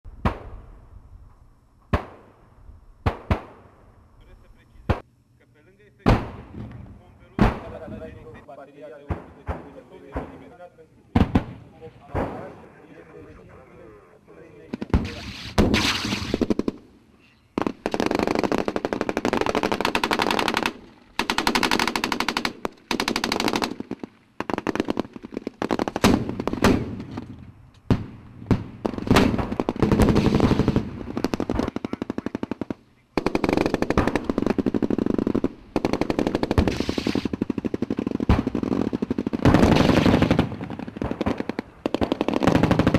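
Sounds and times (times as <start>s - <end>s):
automatic gunfire bursts: 17.6s - 26.9s, 28.8s - 42.9s.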